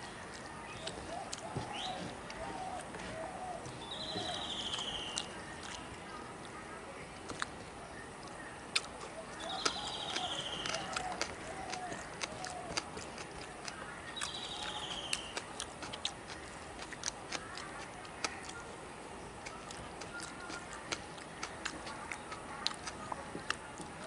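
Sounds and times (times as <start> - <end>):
fingers mixing rice: 0.0 - 6.6, 7.2 - 24.0
wet chewing clicks: 0.0 - 24.0.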